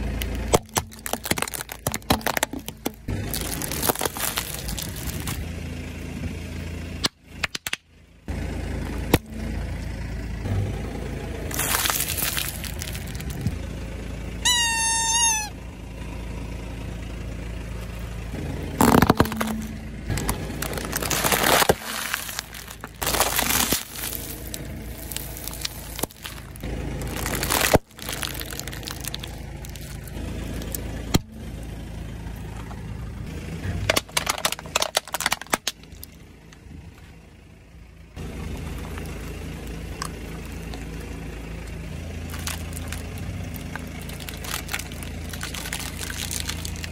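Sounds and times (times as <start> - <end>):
plastic crunching under tyre: 0.0 - 5.5, 11.4 - 13.6, 18.7 - 31.3, 33.7 - 36.2, 38.4 - 46.9
car engine idling: 0.0 - 46.9
hard plastic cracking: 0.2 - 5.4, 11.5 - 13.5, 18.8 - 31.2, 33.9 - 36.2, 42.3 - 46.9
rubber toy squeaking: 14.4 - 15.6.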